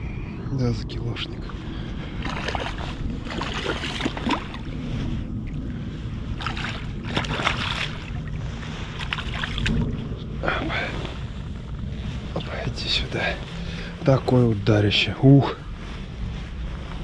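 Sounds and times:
wind rumble on microphone: 0:00.0 - 0:17.0
clothing rustling and handling noise: 0:10.5 - 0:17.0.

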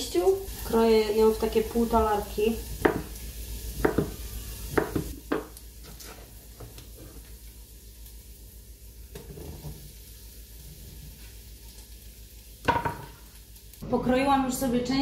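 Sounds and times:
food sizzling in oil: 0:00.0 - 0:15.0
knife chopping on wooden board: 0:02.8 - 0:03.1, 0:03.8 - 0:05.5.

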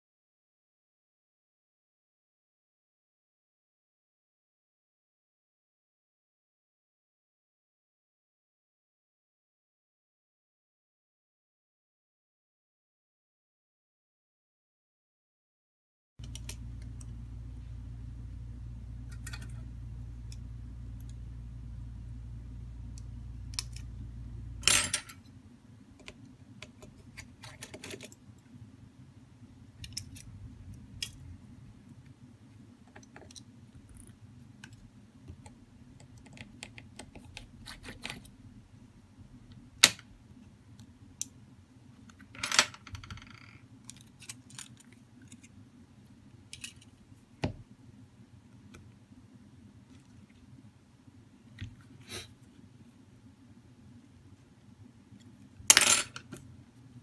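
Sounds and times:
steady low hum: 0:16.2 - 0:42.2.

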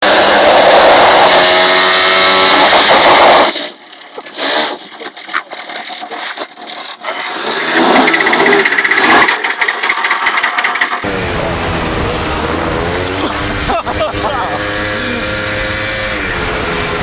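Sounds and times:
motor scooter engine running: 0:07.5 - 0:17.0.

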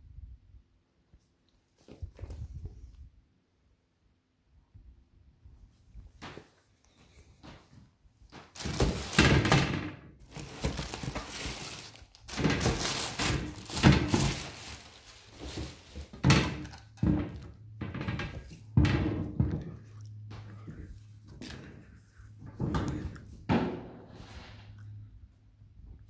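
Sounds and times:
tissue paper rustling: 0:08.4 - 0:09.5, 0:10.2 - 0:16.3.

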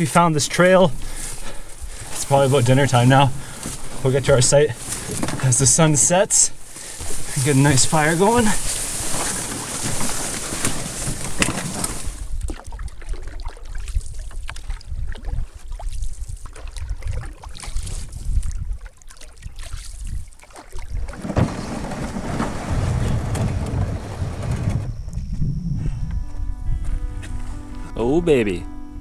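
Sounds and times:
branches scraping canoe: 0:00.0 - 0:12.5, 0:17.4 - 0:18.4, 0:20.1 - 0:25.1
canoe paddling: 0:00.0 - 0:25.0
wind buffeting microphone: 0:10.9 - 0:27.8.

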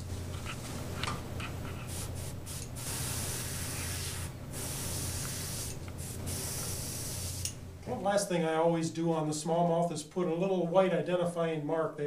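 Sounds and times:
airbrush hissing: 0:01.7 - 0:07.6.

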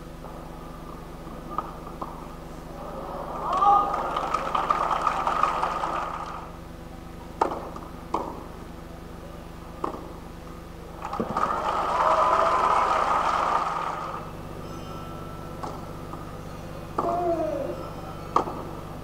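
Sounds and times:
crowd applauding and cheering: 0:03.2 - 0:06.6, 0:11.0 - 0:14.3.

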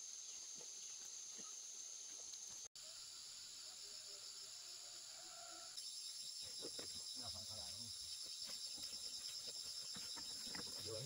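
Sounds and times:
insects chirring: 0:00.0 - 0:11.0
footsteps on dirt path: 0:07.7 - 0:11.0.

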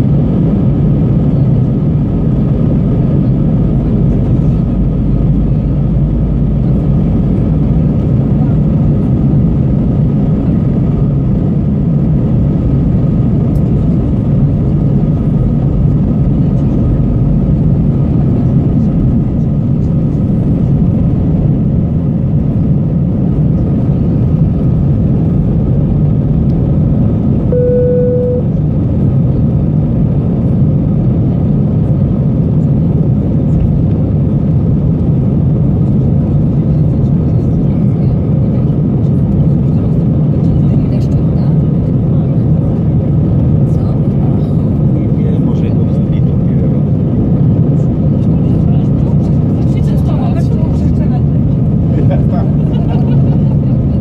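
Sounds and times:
jet engine cabin rumble: 0:00.0 - 0:54.0
short steady beep: 0:27.5 - 0:28.6.

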